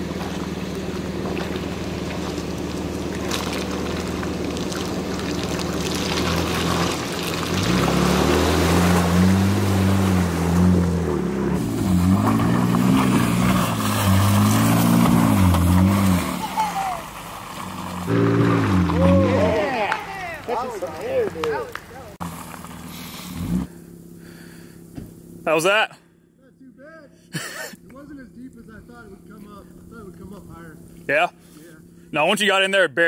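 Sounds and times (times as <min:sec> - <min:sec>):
water splashing: 0:00.0 - 0:22.8
suv engine revving: 0:00.0 - 0:26.4.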